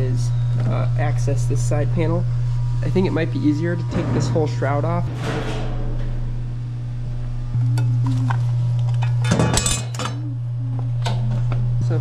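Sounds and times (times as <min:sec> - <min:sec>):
steady low hum: 0:00.0 - 0:12.0
sheet metal clinks and rattles: 0:03.8 - 0:06.4.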